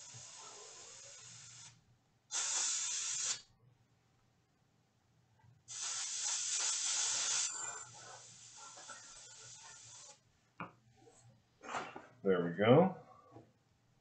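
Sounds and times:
airbrush hissing: 0:00.0 - 0:03.5, 0:05.7 - 0:10.2.

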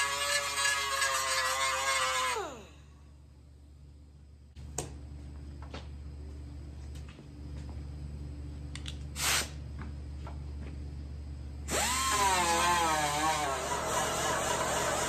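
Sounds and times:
die grinder whining: 0:00.0 - 0:02.7, 0:11.7 - 0:15.0
hiss of air: 0:09.2 - 0:09.6.

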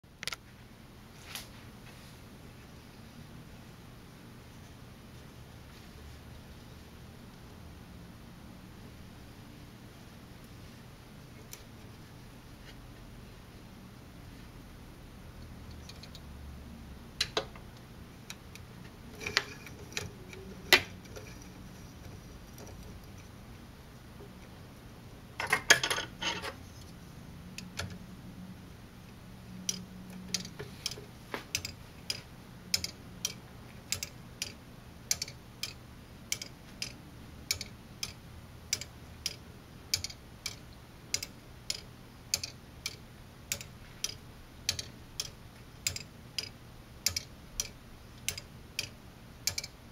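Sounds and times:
plastic clock escapement ticking: 0:29.6 - 0:49.8.

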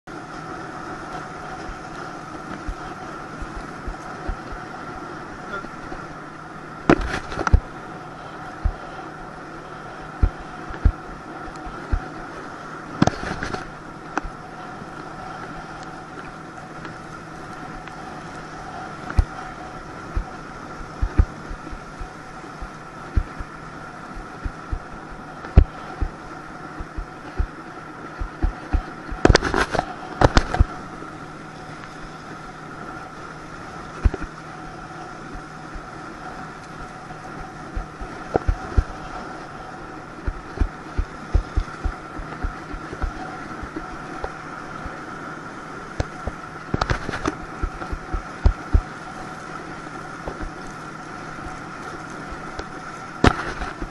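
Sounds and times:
boat engine hum: 0:00.0 - 0:53.9
water rushing: 0:00.0 - 0:53.9
tube thumping on waves: 0:01.1 - 0:04.8, 0:06.8 - 0:07.8, 0:08.5 - 0:08.9, 0:10.0 - 0:12.3, 0:12.9 - 0:14.4, 0:18.9 - 0:30.8, 0:34.0 - 0:34.4, 0:37.7 - 0:39.5, 0:40.1 - 0:45.0, 0:45.9 - 0:49.0, 0:50.2 - 0:50.6, 0:52.3 - 0:53.9.

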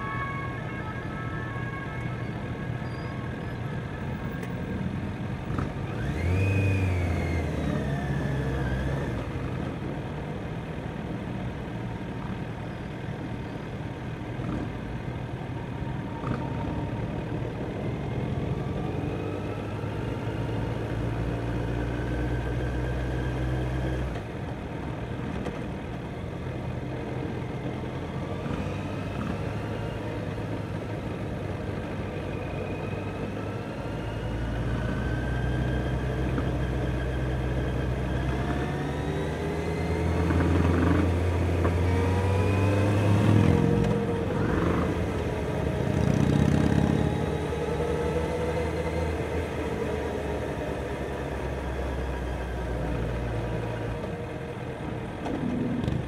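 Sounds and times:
motorcycle engine revving: 0:05.5 - 0:09.4, 0:34.9 - 0:52.6.

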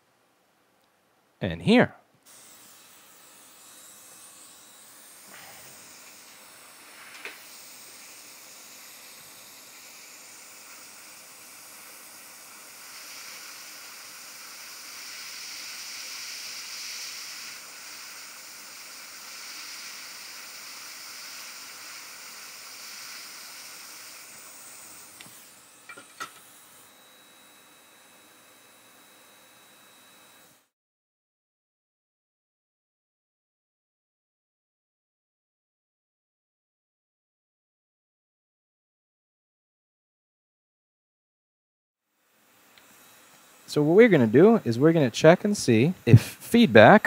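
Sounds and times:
hot air station hissing: 0:02.3 - 0:30.7, 0:42.4 - 0:47.0.

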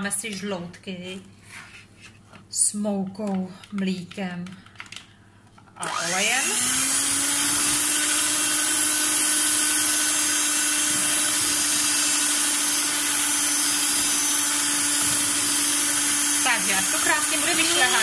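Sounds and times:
electric hand mixer whisking batter: 0:05.8 - 0:18.0.

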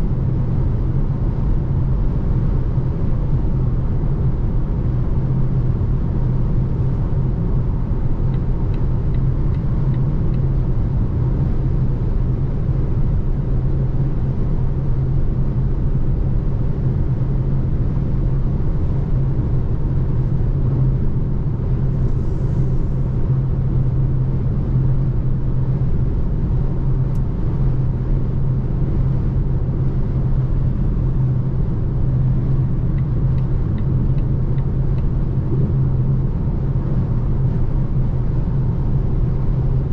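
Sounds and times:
road and tyre rumble in car: 0:00.0 - 0:39.9.

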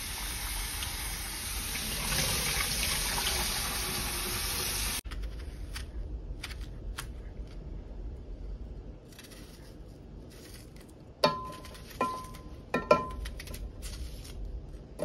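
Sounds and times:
faucet running water into saucepan: 0:00.0 - 0:05.0.

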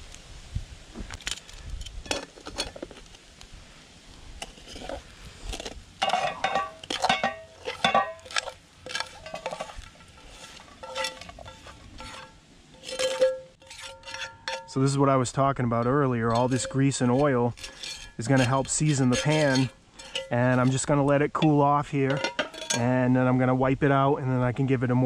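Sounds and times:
utensil scraping metal pan: 0:02.0 - 0:03.0, 0:04.4 - 0:23.0.

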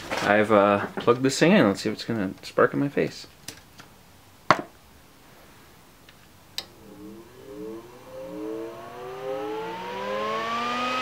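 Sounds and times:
heater fan whining: 0:05.8 - 0:11.0.

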